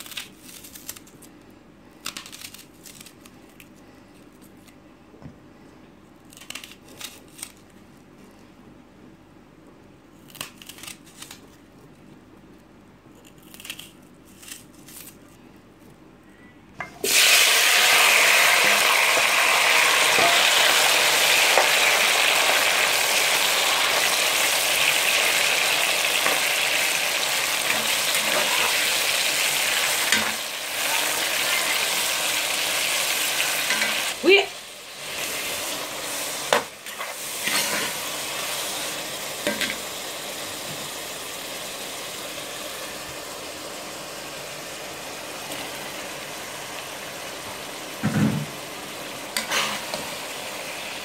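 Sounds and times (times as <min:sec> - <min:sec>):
vegetables sizzling in hot oil: 0:16.9 - 0:51.0.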